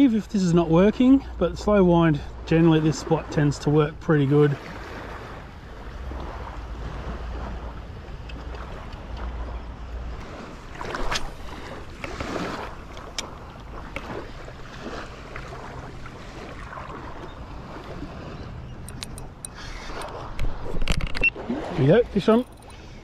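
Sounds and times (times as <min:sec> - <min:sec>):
water lapping: 0:00.0 - 0:23.0
wind buffeting microphone: 0:00.0 - 0:23.0
sharp clicks: 0:18.8 - 0:21.3.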